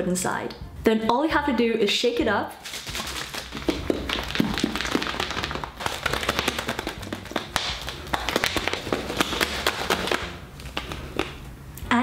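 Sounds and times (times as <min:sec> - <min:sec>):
plastic bottle shaken with knocks: 0:02.6 - 0:11.4.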